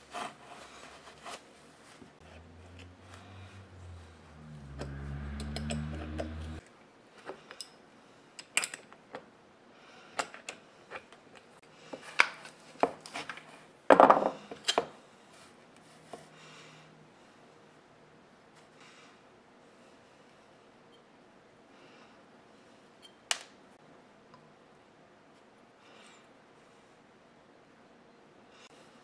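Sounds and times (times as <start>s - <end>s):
low hum: 2.2s - 6.6s.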